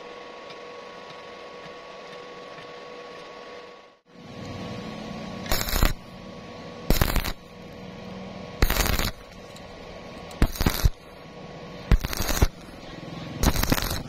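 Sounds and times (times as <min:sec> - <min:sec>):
welding arc bursts: 0:05.5 - 0:06.1, 0:06.9 - 0:07.6, 0:08.6 - 0:09.3, 0:10.4 - 0:11.2, 0:11.8 - 0:14.0.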